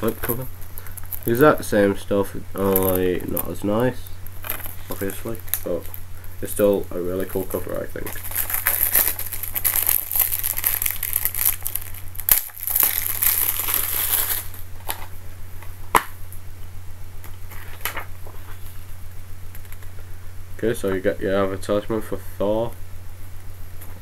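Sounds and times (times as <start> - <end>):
steady low hum: 0.0 - 24.0
plastic case and paper rustling: 4.4 - 5.9.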